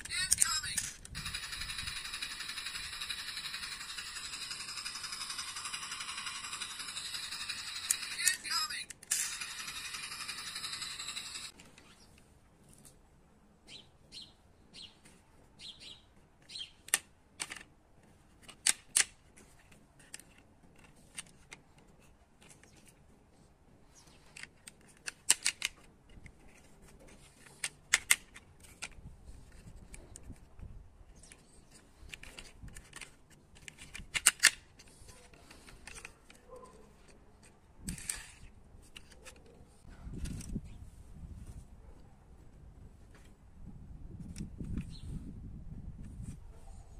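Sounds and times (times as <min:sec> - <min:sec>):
plastic toy clicks and taps: 0:24.4 - 0:26.2.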